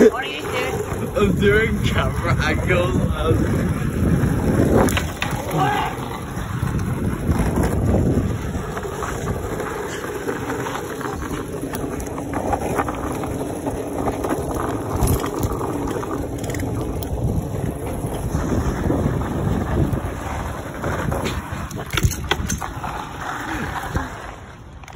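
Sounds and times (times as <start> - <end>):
hard wheels rolling on asphalt: 0.0 - 24.9
wind on microphone: 0.5 - 11.5, 14.4 - 22.8.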